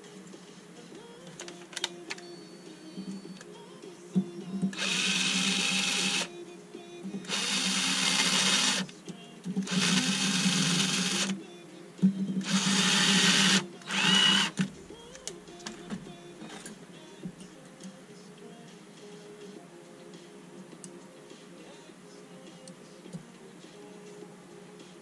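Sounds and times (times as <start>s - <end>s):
power screwdriver running: 4.8s - 6.3s, 7.3s - 8.8s, 9.6s - 11.4s, 12.4s - 14.6s.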